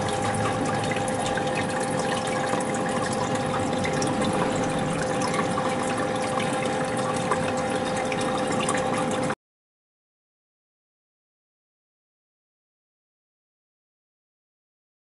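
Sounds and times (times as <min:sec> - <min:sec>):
aquarium pump hum: 0:00.0 - 0:09.4
water trickling and bubbling: 0:00.0 - 0:09.4.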